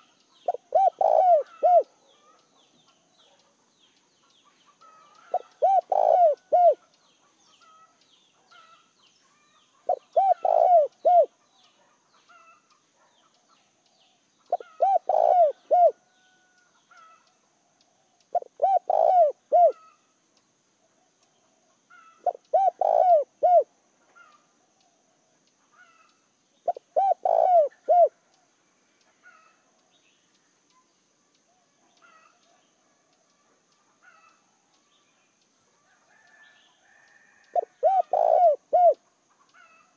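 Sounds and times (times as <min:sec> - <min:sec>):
dove cooing: 0:00.0 - 0:02.0, 0:04.9 - 0:06.8, 0:09.8 - 0:11.3, 0:14.5 - 0:16.0, 0:18.3 - 0:20.0, 0:22.0 - 0:24.3, 0:26.7 - 0:28.2, 0:37.2 - 0:39.0.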